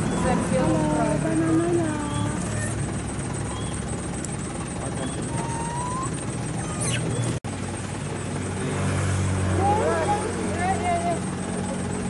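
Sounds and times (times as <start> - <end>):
traffic engine hum and rush: 0.0 - 12.0
faint short chirps: 5.0 - 7.4.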